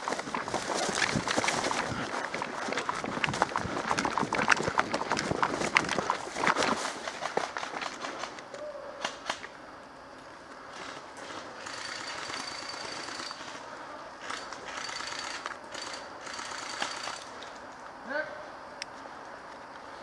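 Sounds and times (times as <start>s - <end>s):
footsteps through undergrowth: 0.0s - 8.4s.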